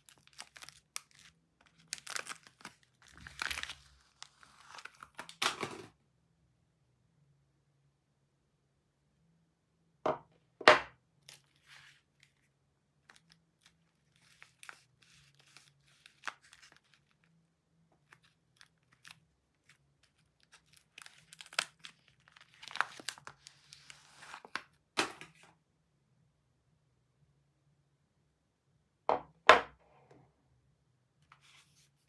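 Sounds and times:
paper tearing and crinkling: 0.0s - 5.6s, 18.1s - 24.6s.

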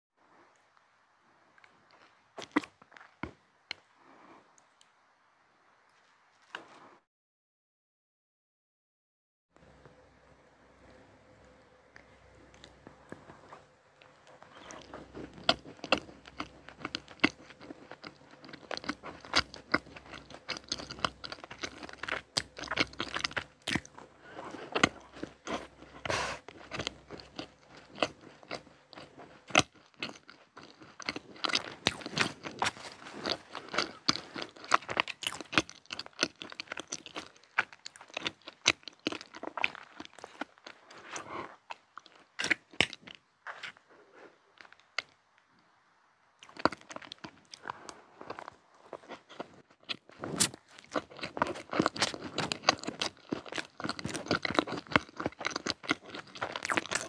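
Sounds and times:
chewing: 1.6s - 3.9s, 11.4s - 45.6s, 46.4s - 57.0s
crunchy bites: 12.0s - 43.9s, 46.4s - 57.0s.

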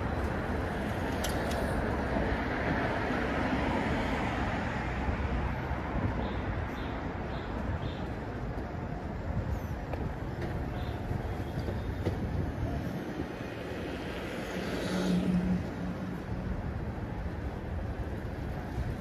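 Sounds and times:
city traffic: 0.0s - 19.0s
vehicle passing: 14.1s - 16.4s.

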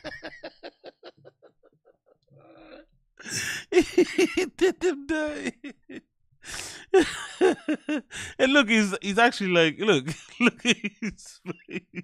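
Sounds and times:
man laughing: 0.0s - 2.0s, 3.2s - 8.9s, 10.0s - 12.0s.

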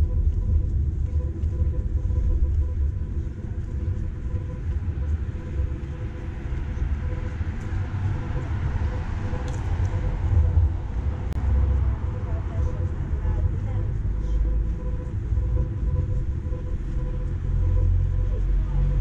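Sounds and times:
low traffic rumble: 0.0s - 19.0s
vehicle passing: 6.3s - 14.1s.

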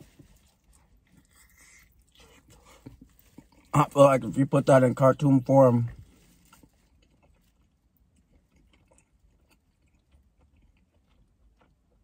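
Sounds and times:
wet mouth clicks chewing: 0.5s - 3.7s, 6.4s - 12.0s.

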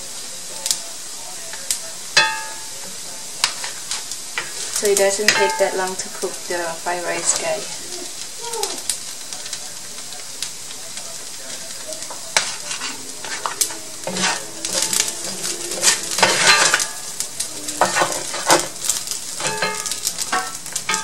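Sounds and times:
rice sizzling in a skillet: 0.0s - 21.0s
spatula scraping a pan: 3.4s - 8.2s, 11.5s - 21.0s.

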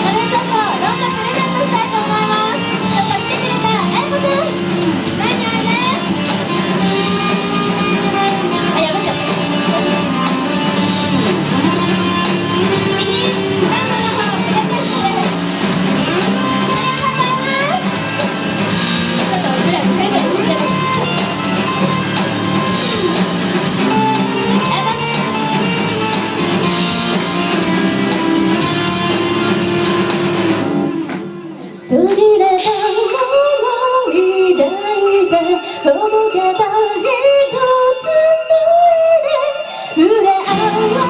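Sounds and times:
woman singing into a microphone: 0.0s - 15.2s, 31.9s - 41.0s
rock song with female vocals: 0.0s - 41.0s.

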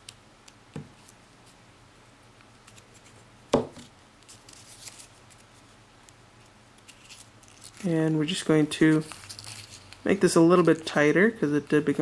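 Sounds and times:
paper strip rustling: 4.2s - 5.7s, 6.4s - 11.0s.

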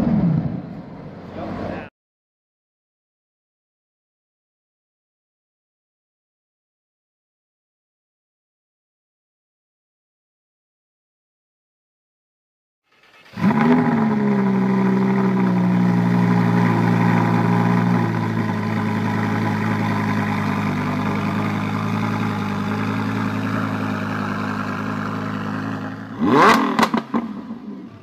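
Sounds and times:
car engine high idle: 12.9s - 26.5s
engine revving: 12.9s - 28.0s.

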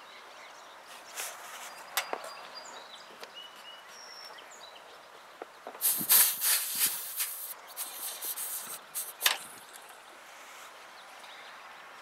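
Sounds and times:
birds chirping: 0.0s - 12.0s
refrigerant hissing: 5.8s - 9.4s.

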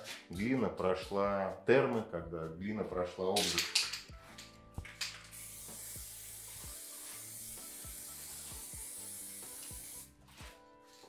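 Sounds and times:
faint background music: 0.0s - 11.0s
aerosol spray can hissing: 4.8s - 10.2s.

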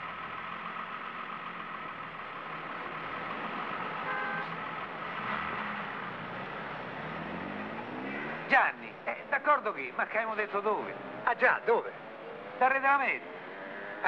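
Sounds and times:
cars passing close by: 0.0s - 14.0s
car horn toot: 4.0s - 4.6s.

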